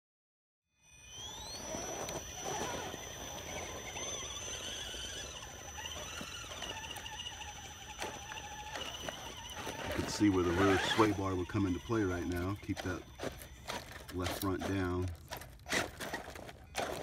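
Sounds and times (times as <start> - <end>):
electric motors whining: 0.8 - 17.0.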